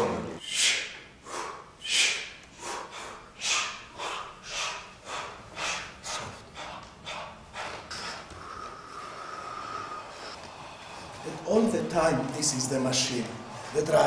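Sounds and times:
sharp forced breaths: 0.4 - 11.4.

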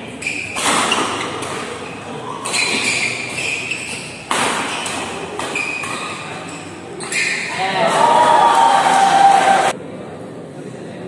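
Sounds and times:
rackets striking shuttlecock: 2.4 - 7.5
spectator chatter: 6.1 - 11.0.

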